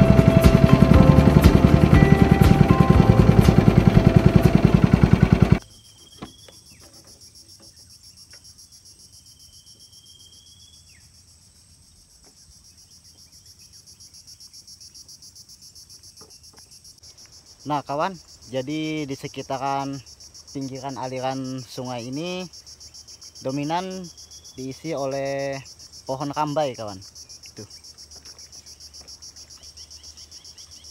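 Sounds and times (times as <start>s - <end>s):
background music with beat: 0.0s - 4.8s
insects trilling: 0.1s - 30.9s.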